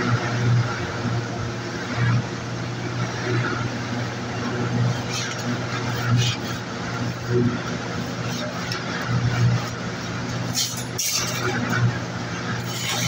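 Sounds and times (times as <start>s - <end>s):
short scrapes: 12.6s - 13.0s.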